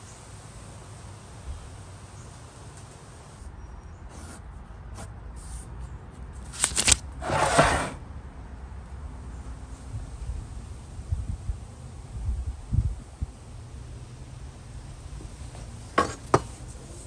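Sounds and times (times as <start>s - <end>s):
pencil scratching on paper: 4.1s - 5.6s.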